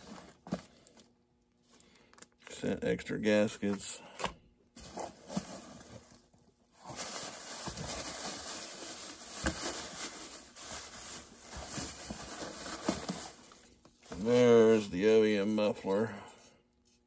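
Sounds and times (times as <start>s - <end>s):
plastic bag rustling: 4.8s - 16.0s.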